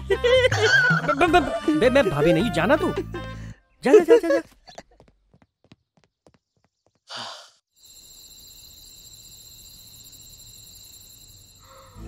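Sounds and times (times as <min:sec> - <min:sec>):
person sighing: 0:07.1 - 0:07.6
insect chirring: 0:07.8 - 0:12.0.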